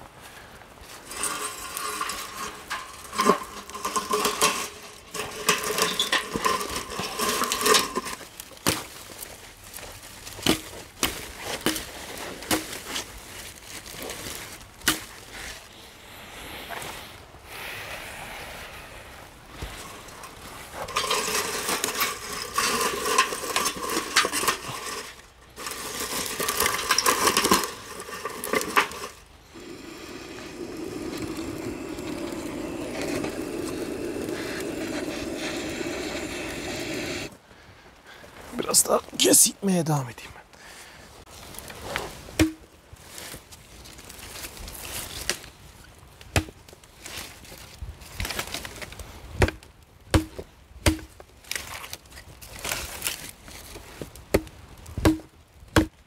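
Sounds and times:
twigs snapping and crackling: 1.0s - 15.7s, 41.3s - 56.0s
gas torch roaring: 1.1s - 8.1s, 25.6s - 37.4s.

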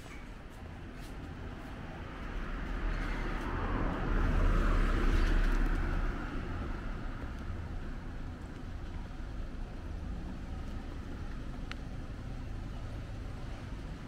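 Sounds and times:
car driving past: 2.3s - 7.2s.

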